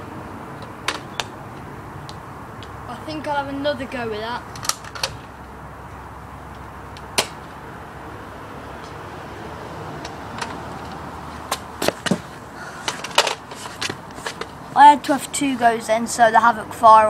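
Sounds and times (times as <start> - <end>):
outdoor background hiss: 0.0 - 17.0
footsteps on paving: 11.2 - 12.4.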